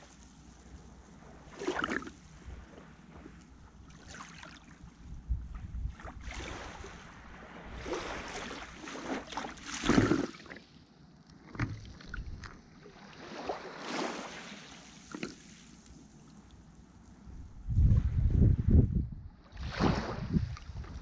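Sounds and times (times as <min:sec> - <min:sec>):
sea water splashing and lapping: 0:00.0 - 0:17.4, 0:19.4 - 0:21.0
wind on microphone: 0:05.0 - 0:08.4, 0:17.3 - 0:21.0.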